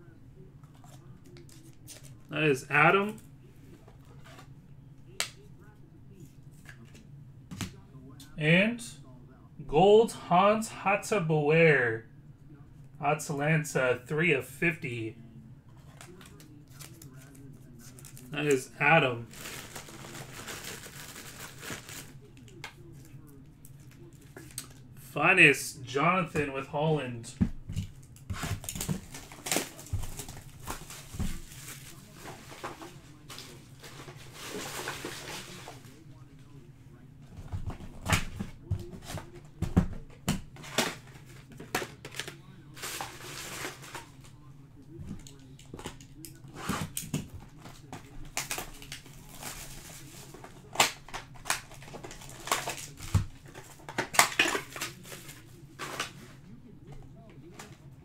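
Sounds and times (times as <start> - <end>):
shrink wrap crinkling: 15.8 - 18.5, 19.1 - 24.8, 28.0 - 36.3, 40.6 - 44.5, 47.6 - 56.2.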